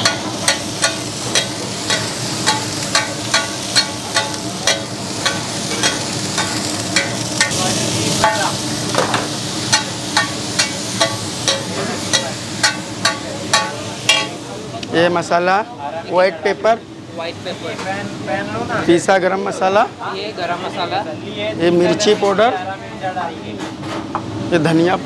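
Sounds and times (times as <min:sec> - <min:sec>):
food sizzling in oil: 0:00.0 - 0:15.3.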